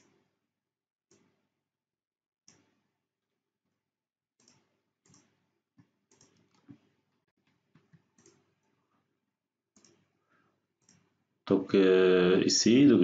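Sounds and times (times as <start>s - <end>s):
computer mouse clicks: 4.4s - 6.8s, 7.5s - 8.8s, 9.8s - 10.2s, 10.8s - 11.2s.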